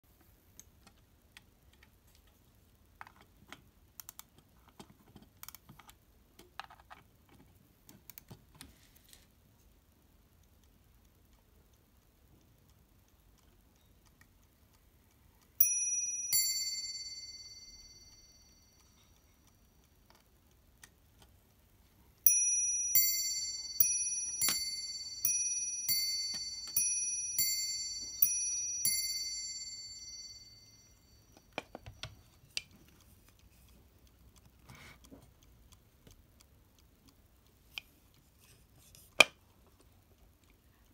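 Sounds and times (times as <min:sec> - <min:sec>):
mantel clock striking: 0:15.6 - 0:19.4, 0:22.3 - 0:32.1.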